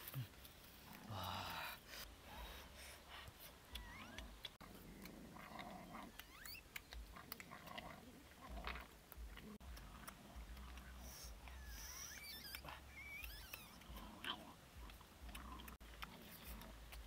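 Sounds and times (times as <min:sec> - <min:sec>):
faint high chirps: 0:03.6 - 0:04.6, 0:06.0 - 0:07.0, 0:11.0 - 0:14.0
dogs chewing bones: 0:03.7 - 0:17.0.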